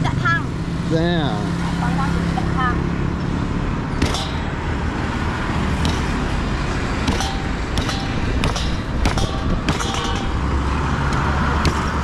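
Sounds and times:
low rumble of road traffic: 0.0s - 12.0s
cleaver chopping on wooden block: 4.0s - 4.6s, 5.7s - 6.4s, 7.0s - 10.5s, 11.1s - 12.0s.

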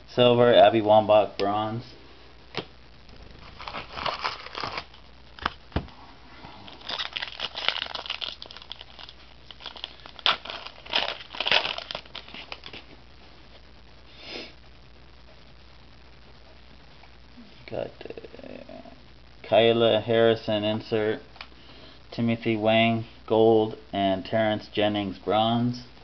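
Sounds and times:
wrapper tearing and crumpling: 3.1s - 5.6s, 6.5s - 12.9s
cards rustling: 3.1s - 5.9s, 6.6s - 13.0s.

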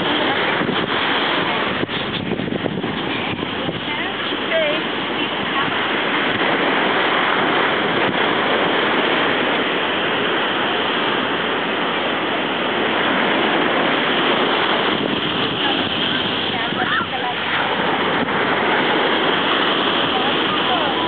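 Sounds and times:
ocean surf on a beach: 0.0s - 21.0s.

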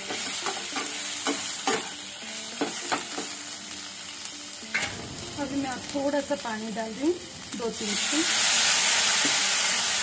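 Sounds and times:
frying sizzle: 0.0s - 10.0s.

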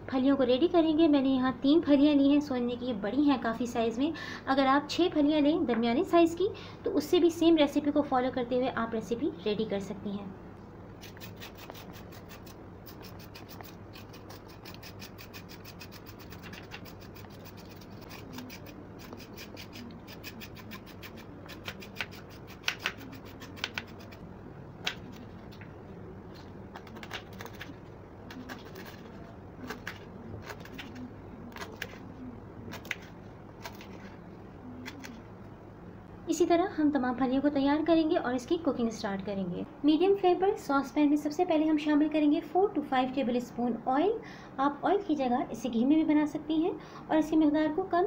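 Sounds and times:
knife scraping on cutting board: 11.0s - 24.2s.

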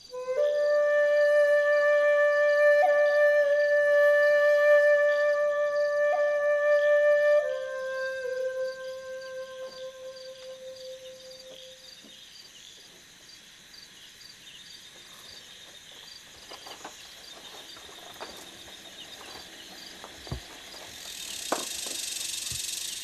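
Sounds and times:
held flute note: 0.0s - 11.8s
night insects chirping: 0.0s - 23.0s
footsteps on bamboo floor: 14.9s - 23.0s.

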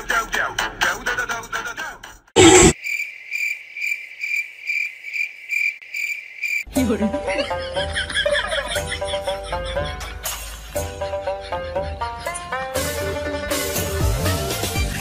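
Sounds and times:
cricket chirping: 2.4s - 6.7s
music: 6.7s - 15.0s.

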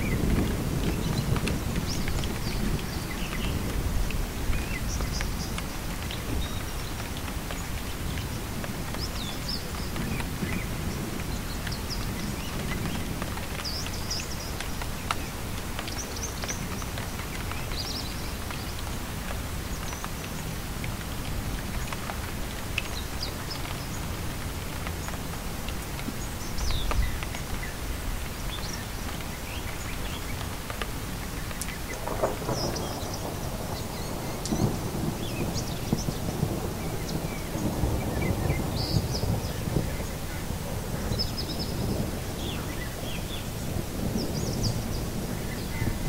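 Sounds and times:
steady rain: 0.0s - 46.0s
birds chirping: 31.3s - 46.0s.

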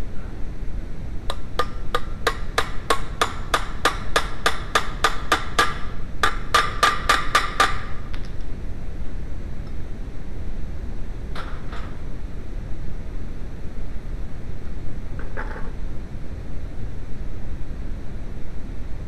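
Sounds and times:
hammer tapping metal drift: 1.3s - 8.2s.

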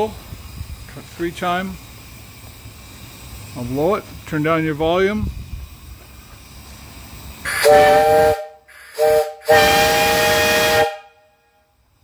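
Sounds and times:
rush of escaping steam: 0.0s - 11.2s
steam whistle blasts: 7.4s - 11.7s.

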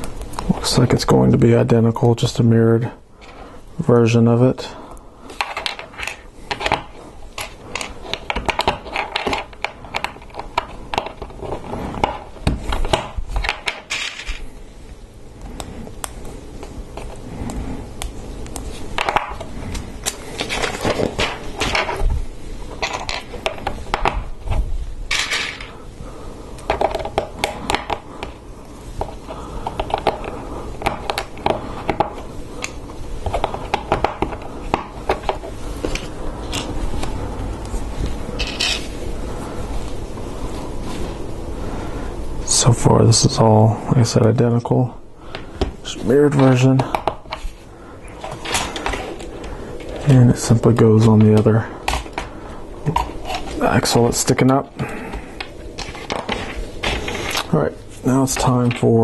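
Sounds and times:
plastic parts clicking and clattering: 5.4s - 14.4s, 22.8s - 24.2s, 25.1s - 25.7s, 38.4s - 38.9s.

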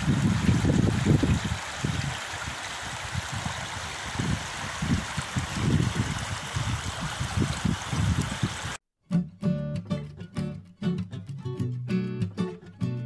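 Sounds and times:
river rushing over stones: 0.0s - 8.8s.

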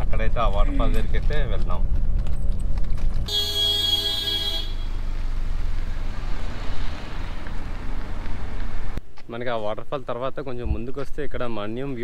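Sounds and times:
car road rumble: 0.0s - 9.0s
horn-like tone: 3.3s - 4.9s.

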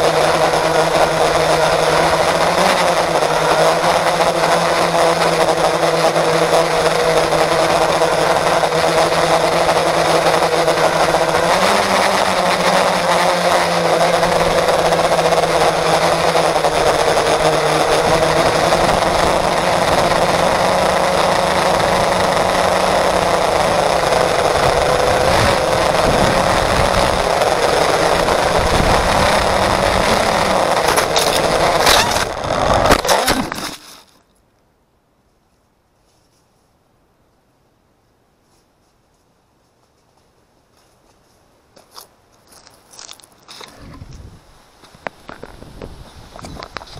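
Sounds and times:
quadcopter motors whining: 0.0s - 33.9s
sharp knocks of drone tumbling: 2.1s - 33.8s.

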